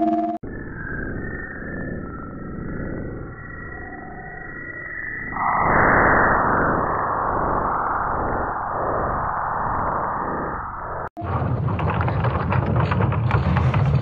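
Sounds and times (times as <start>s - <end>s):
loud rush of noise: 5.3s - 11.8s.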